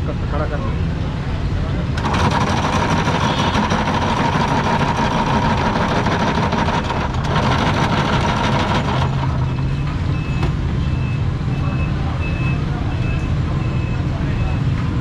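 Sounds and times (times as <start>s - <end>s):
ice-shaving machine whining: 2.0s - 9.6s
short beeps: 9.7s - 14.7s.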